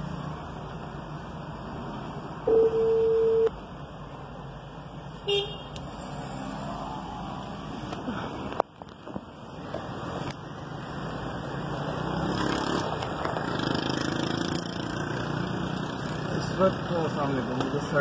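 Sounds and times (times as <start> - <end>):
phone ringing tone beeps: 2.5 - 3.5.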